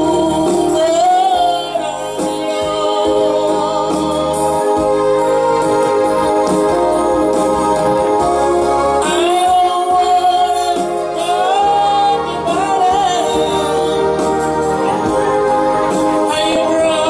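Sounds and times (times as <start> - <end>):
man singing into microphone: 0.0 - 5.6, 9.0 - 15.2, 15.9 - 17.0
backing music: 0.0 - 17.0.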